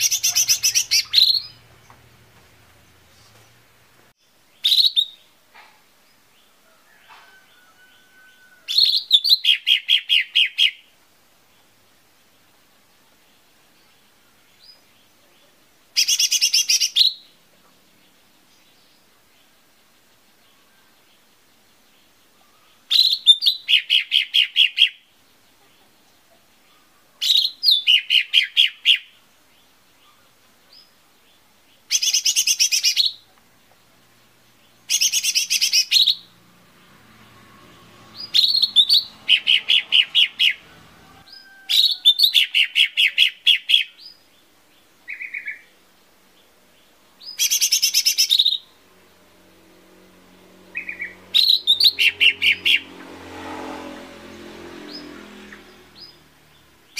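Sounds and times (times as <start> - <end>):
short bird calls: 0.0 - 2.1, 4.6 - 11.0, 31.8 - 33.4, 38.1 - 44.5, 46.8 - 48.8, 50.7 - 52.9
bird singing chattering phrases: 0.0 - 6.6, 8.7 - 10.9, 13.7 - 36.4, 38.1 - 40.6, 41.3 - 48.8, 50.7 - 52.9.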